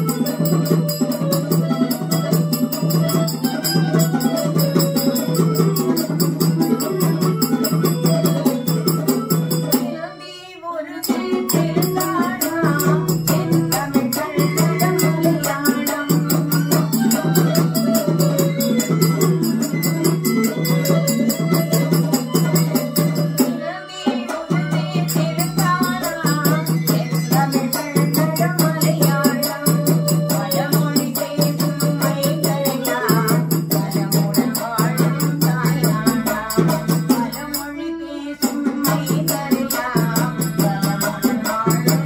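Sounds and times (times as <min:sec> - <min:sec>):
rattle-like percussion rhythm: 0:00.0 - 0:10.0, 0:11.0 - 0:42.0
woman singing folk song: 0:09.7 - 0:18.5, 0:21.6 - 0:42.0.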